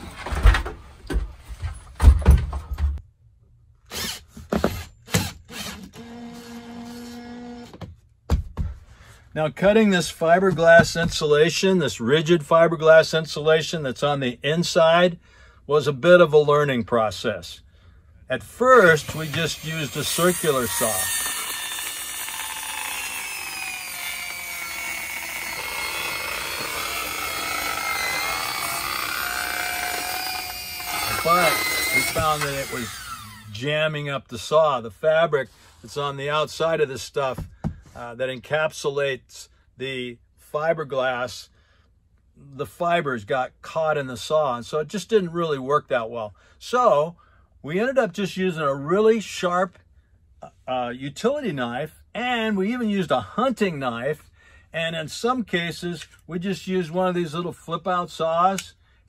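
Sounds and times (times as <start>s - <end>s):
knocks and thumps of tool handling: 0.0s - 3.0s, 4.3s - 5.4s, 7.7s - 8.9s, 10.5s - 11.2s, 29.8s - 32.8s, 37.3s - 38.0s
drill motor humming: 5.1s - 7.7s, 18.8s - 33.5s.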